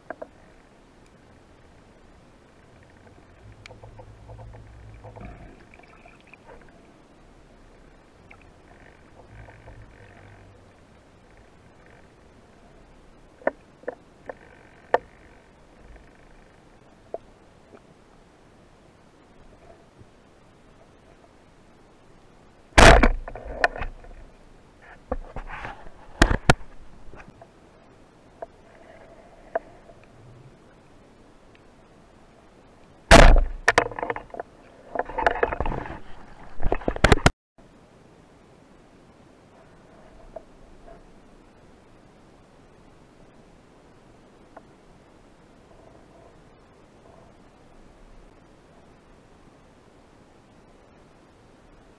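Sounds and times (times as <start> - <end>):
small clicks and knocks: 0.0 - 0.4, 13.4 - 16.4, 22.8 - 27.5, 33.1 - 37.3
faint clicks and crackles: 0.0 - 18.2, 22.7 - 30.8, 32.3 - 37.3
underwater rumble: 0.3 - 17.8
speargun firing underwater: 22.8 - 23.4, 33.1 - 34.1.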